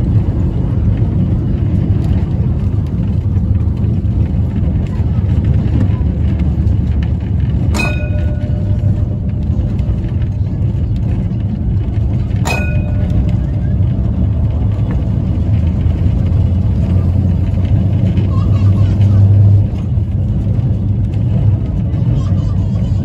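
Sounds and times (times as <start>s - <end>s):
tram rumbling on rails: 0.0s - 23.0s
sharp metallic clang: 7.7s - 10.2s, 12.4s - 13.8s.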